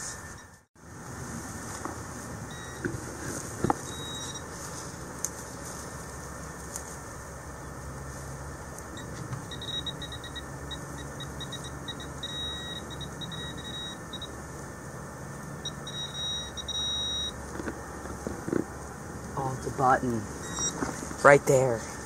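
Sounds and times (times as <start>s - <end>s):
metal detector probe beeping: 2.5s - 2.9s, 3.8s - 4.5s, 9.0s - 14.4s, 15.6s - 17.6s, 20.4s - 20.8s.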